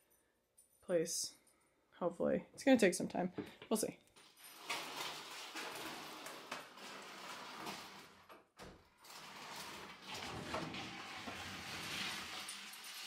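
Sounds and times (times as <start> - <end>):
plastic tote scraping on wood floor: 4.4 - 13.0.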